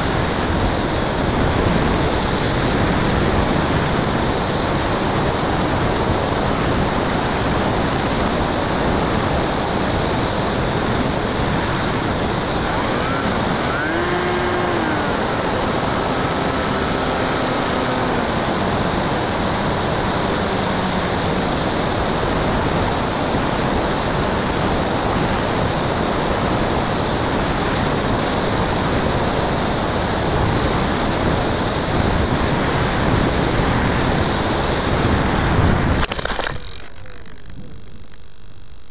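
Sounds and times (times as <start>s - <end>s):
low propeller hum: 0.0s - 38.6s
high-pitched motor whine: 0.0s - 38.9s
airflow rushing over camera: 10.4s - 22.9s.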